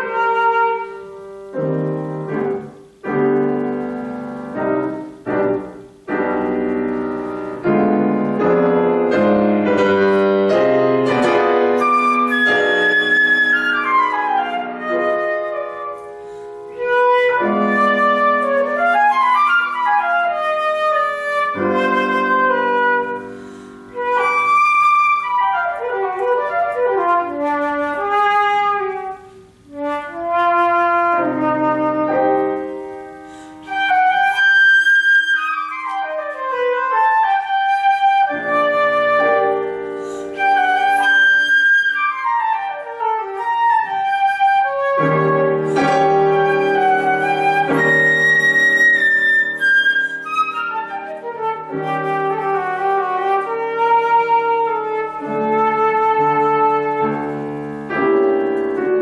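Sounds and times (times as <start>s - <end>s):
piano accompaniment: 0.0s - 59.0s
flute playing fast runs: 11.6s - 16.0s, 16.7s - 23.3s, 33.6s - 57.4s.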